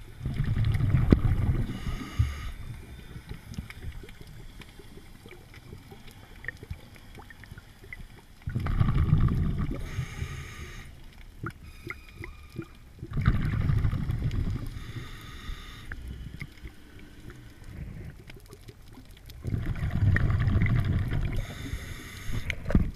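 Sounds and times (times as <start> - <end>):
diver exhaling bubbles underwater: 0.2 - 2.6, 8.5 - 10.2, 13.0 - 14.8, 19.4 - 21.8.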